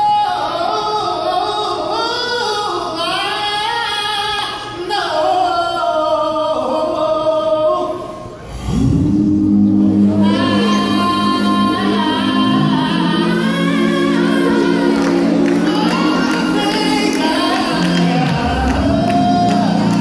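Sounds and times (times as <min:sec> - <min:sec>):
male a cappella group singing: 0:08.6 - 0:20.0.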